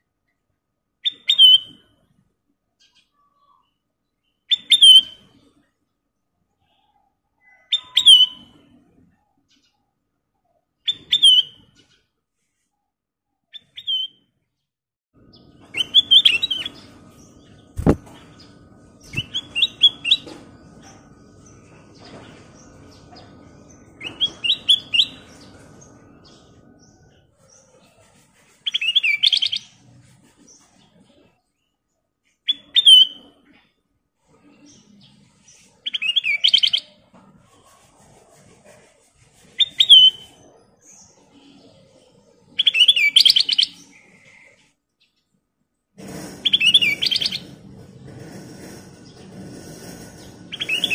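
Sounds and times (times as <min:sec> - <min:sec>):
bulbul singing: 0:15.4 - 0:20.3
sharp knock: 0:17.8 - 0:18.2.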